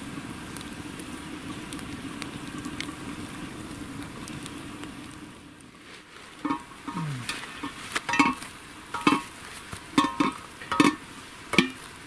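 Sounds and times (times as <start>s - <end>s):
metal ladle clinking on pot: 6.4s - 6.7s, 8.1s - 8.4s, 9.0s - 9.3s, 10.0s - 11.8s.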